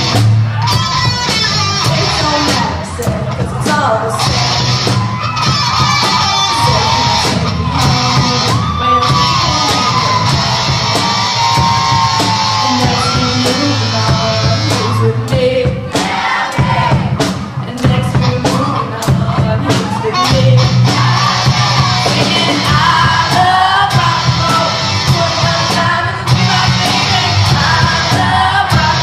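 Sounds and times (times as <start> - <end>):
rock band playing: 0.0 - 29.0
person singing: 6.2 - 10.3, 12.5 - 16.0, 17.6 - 29.0.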